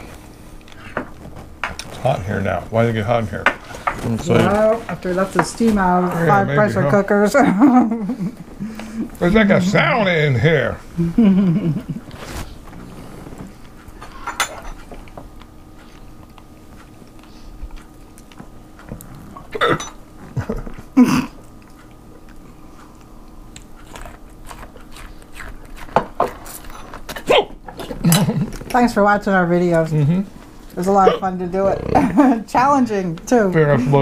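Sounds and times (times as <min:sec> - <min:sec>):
person chewing corn on the cob: 0:15.0 - 0:19.4, 0:21.4 - 0:28.7
crunching mouth noises: 0:20.6 - 0:28.8.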